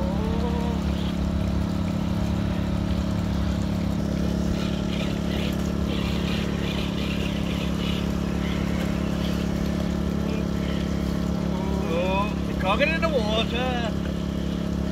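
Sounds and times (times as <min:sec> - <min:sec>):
generator engine hum: 0:00.0 - 0:14.9
toy truck splashing through water: 0:00.0 - 0:14.9.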